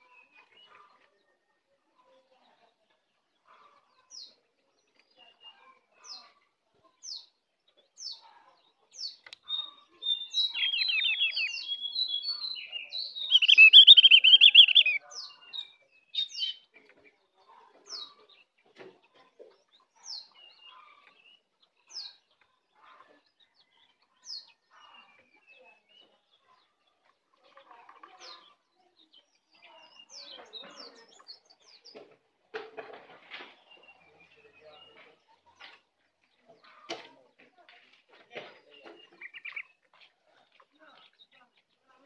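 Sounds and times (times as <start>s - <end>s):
songbird calling: 9.0s - 16.7s, 38.6s - 39.8s.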